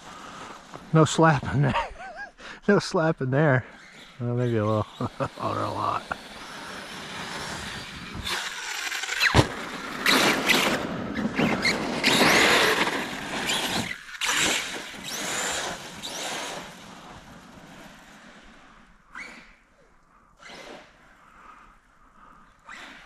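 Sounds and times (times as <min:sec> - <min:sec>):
tires churning slush: 0:03.5 - 0:19.5
electric motor whining: 0:03.8 - 0:17.4.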